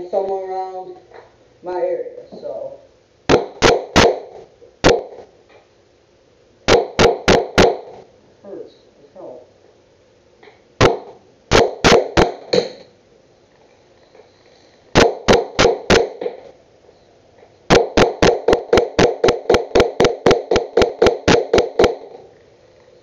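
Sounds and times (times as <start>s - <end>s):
hammer striking nail into wood: 6.7s - 7.8s, 15.0s - 16.4s, 17.7s - 22.2s.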